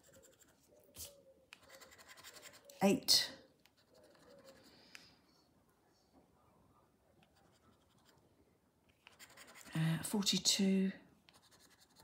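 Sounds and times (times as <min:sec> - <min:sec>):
scratch card scratching: 0:00.0 - 0:02.8, 0:09.0 - 0:09.7, 0:11.3 - 0:12.0.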